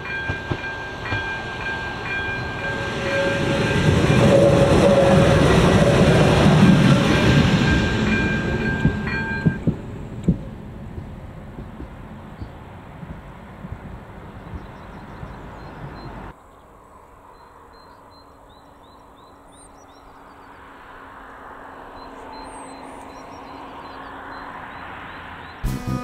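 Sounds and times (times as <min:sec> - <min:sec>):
rushing noise: 0:00.0 - 0:14.2
wind rumble on microphone: 0:03.3 - 0:16.3
small birds chirping: 0:14.1 - 0:16.7, 0:21.9 - 0:25.7.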